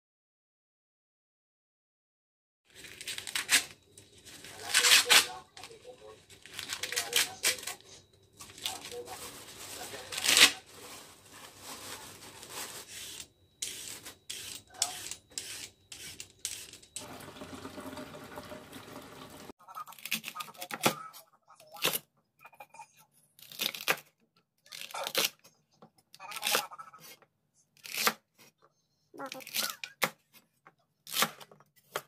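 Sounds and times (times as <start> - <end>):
knife cutting celery on board: 12.9 - 16.9, 27.8 - 28.5, 31.1 - 32.0.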